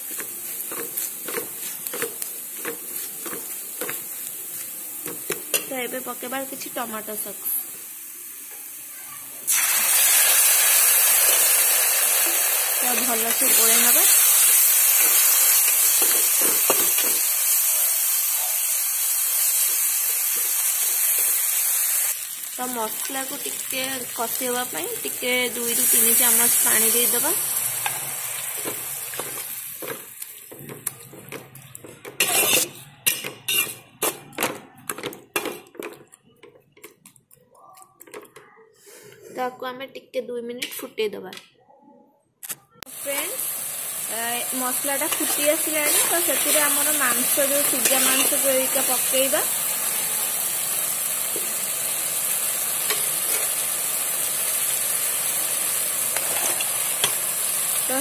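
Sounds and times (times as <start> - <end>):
oil sizzling: 0.0 - 33.8, 42.9 - 58.0
metal spatula scraping pan: 32.0 - 34.3, 45.1 - 48.6.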